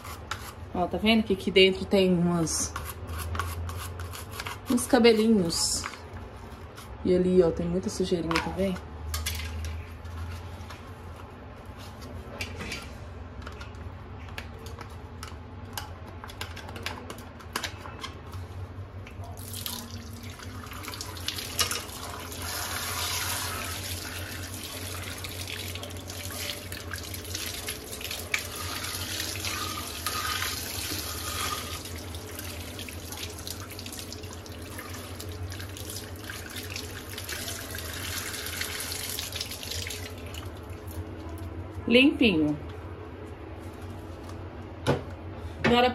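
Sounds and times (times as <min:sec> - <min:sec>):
tap water running and splashing: 0:19.4 - 0:41.0.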